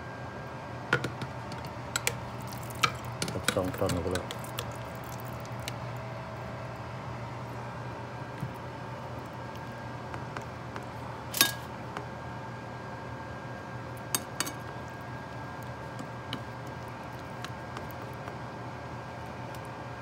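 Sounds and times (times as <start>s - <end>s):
metal tongs clinking on plate: 11.4s - 11.7s.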